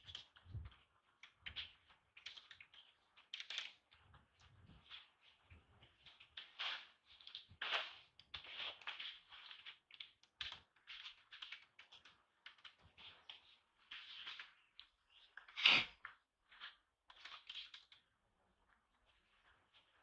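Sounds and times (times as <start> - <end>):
monkeys soft clicks and smacks: 0.0 - 6.6.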